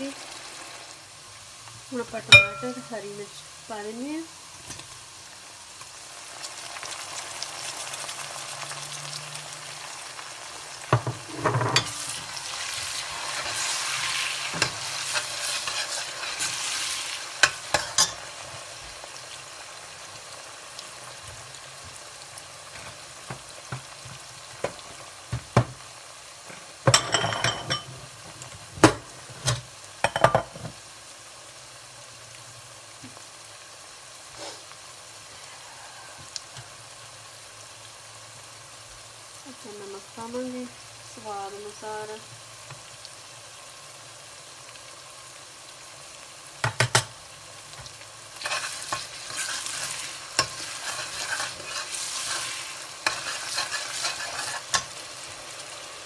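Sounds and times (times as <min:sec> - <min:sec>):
vegetables sizzling in hot oil: 0:00.0 - 0:56.0
ladle clinking against pot: 0:02.4 - 0:02.9.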